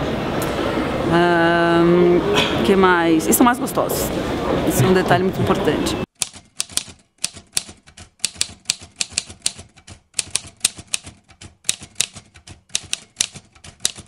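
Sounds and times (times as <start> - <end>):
typewriter key clacks: 6.2 - 14.0.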